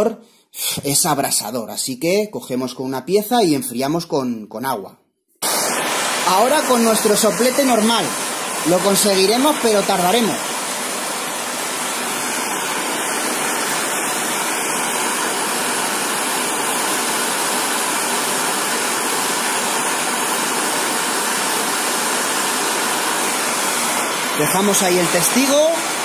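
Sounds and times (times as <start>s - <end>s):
blowtorch hissing: 5.4s - 26.0s.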